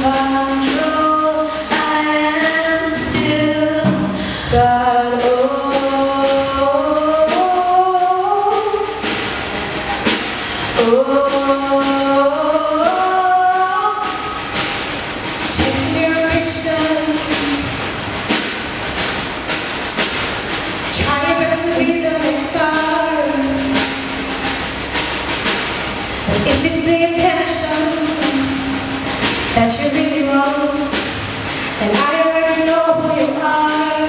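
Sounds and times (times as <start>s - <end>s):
accompaniment with steady beat: 0.0s - 34.0s
youth choir singing gospel: 20.9s - 24.9s.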